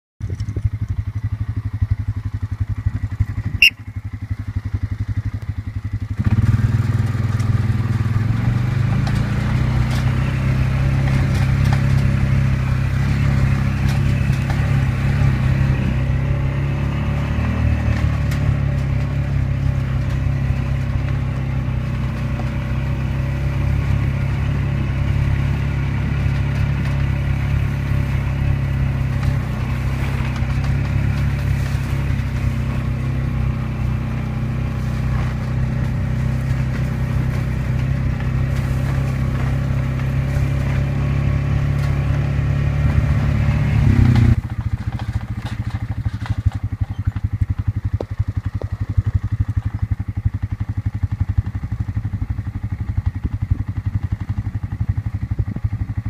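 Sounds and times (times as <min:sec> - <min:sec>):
vehicle engine idling: 0:00.2 - 0:56.0
short high rising squeak: 0:03.6 - 0:04.0.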